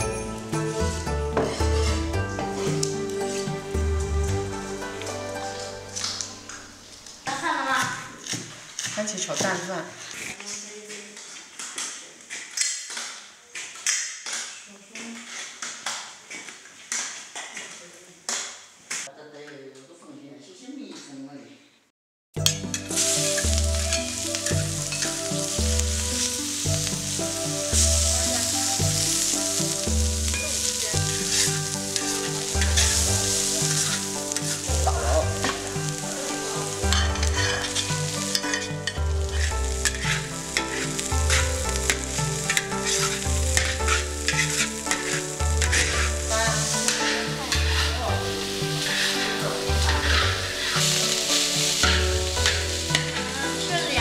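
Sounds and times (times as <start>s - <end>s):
hot oil sizzling in a wok: 0.0s - 9.5s, 22.4s - 54.0s
metal ladle scraping a wok: 0.8s - 3.6s, 22.4s - 54.0s.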